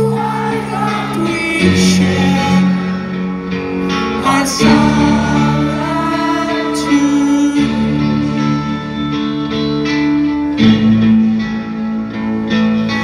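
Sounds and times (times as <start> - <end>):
person singing: 0.0 - 9.6
guitar chords: 0.0 - 13.0.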